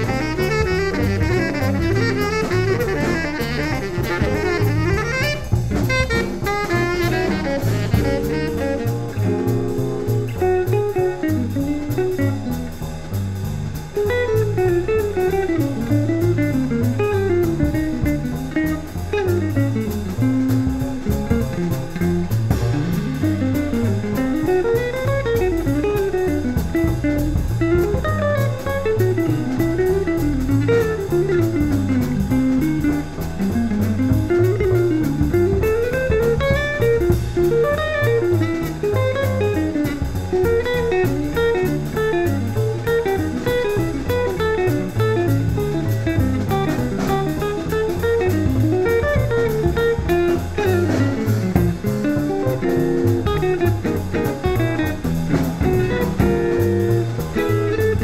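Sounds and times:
double bass: 0:00.0 - 0:58.0
drum kit: 0:00.0 - 0:58.0
jazz guitar solo: 0:00.0 - 0:58.0.

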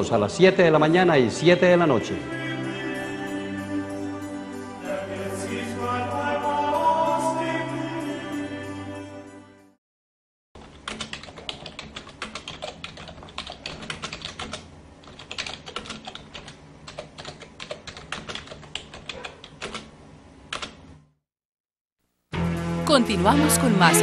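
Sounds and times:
computer keyboard typing: 0:10.6 - 0:19.9, 0:20.5 - 0:20.8.

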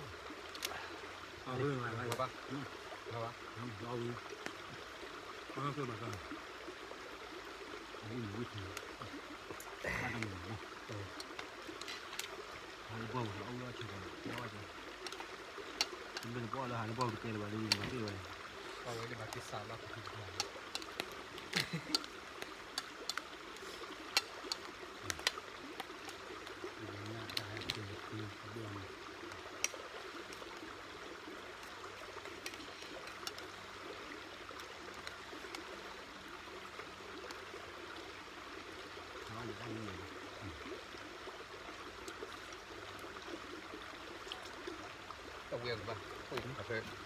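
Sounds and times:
stream running: 0:00.0 - 0:47.0
faint voice murmuring: 0:09.7 - 0:11.2.

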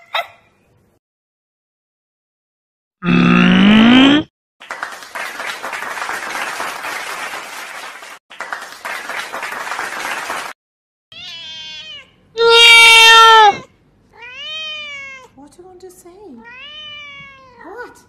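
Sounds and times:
cat meowing: 0:11.1 - 0:15.4, 0:16.4 - 0:17.8.

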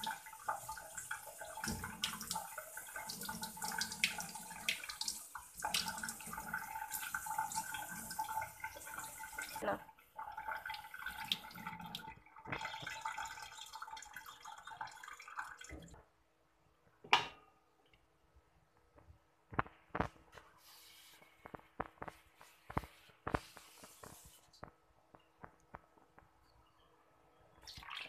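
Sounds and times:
tap water running into a sink: 0:00.0 - 0:16.0.

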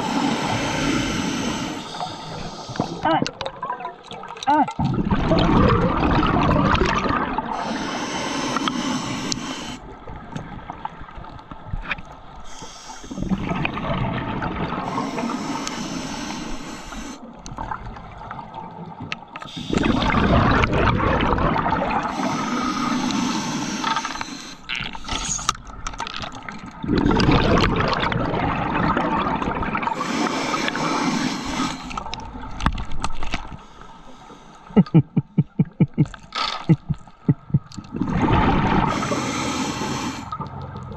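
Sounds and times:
regulator hiss on inhale: 0:00.0 - 0:03.0, 0:07.6 - 0:09.8, 0:12.4 - 0:13.7, 0:14.9 - 0:17.2, 0:19.5 - 0:20.2, 0:22.1 - 0:25.5, 0:29.9 - 0:32.0, 0:38.9 - 0:40.4
bubbles rushing on exhale: 0:04.8 - 0:09.8, 0:13.0 - 0:15.6, 0:17.6 - 0:24.2, 0:26.7 - 0:32.2, 0:36.7 - 0:40.5.

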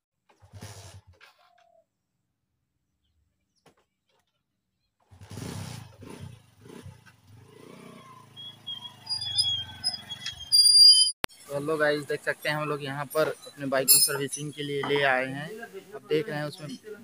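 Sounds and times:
motorcycle engine revving: 0:05.0 - 0:10.5.

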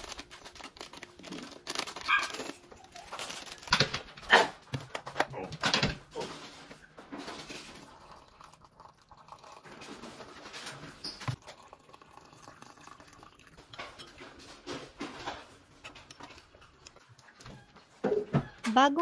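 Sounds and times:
hot water pouring into mugs: 0:07.2 - 0:14.4.

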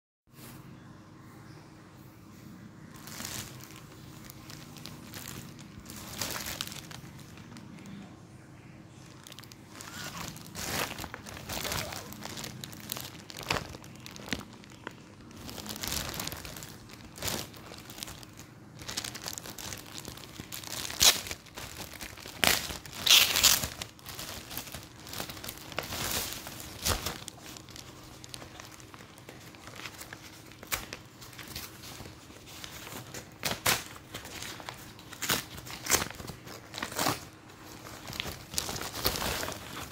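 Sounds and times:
plastic bag crinkling: 0:02.9 - 0:39.9
paper wrapping tearing: 0:09.2 - 0:39.9.

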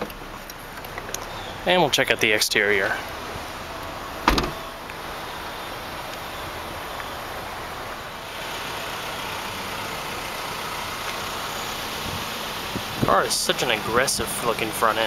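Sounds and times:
car engine idling: 0:00.0 - 0:15.0
road traffic passing: 0:00.0 - 0:15.0
short knock: 0:04.3 - 0:04.6.

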